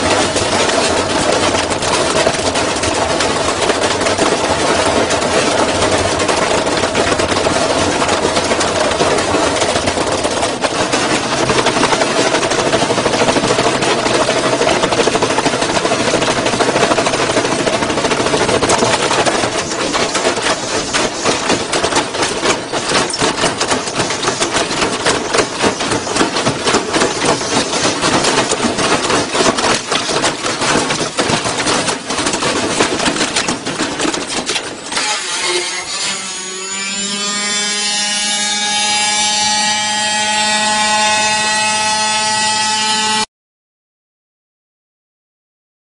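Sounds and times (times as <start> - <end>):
washing machine banging and rattling: 0.0 - 35.1.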